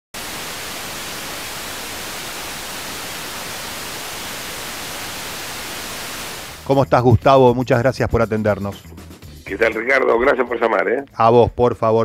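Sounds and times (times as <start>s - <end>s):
television static hiss: 0.2s - 6.6s.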